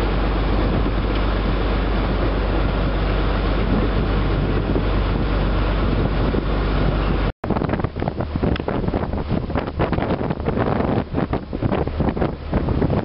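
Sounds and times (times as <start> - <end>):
boat engine rumbling: 0.0 - 13.0
wind noise on microphone: 0.0 - 13.0.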